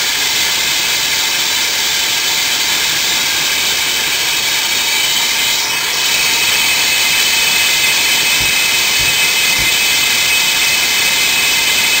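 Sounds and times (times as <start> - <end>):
core drill cutting masonry: 0.0 - 12.0
faint low thumps: 8.3 - 10.1.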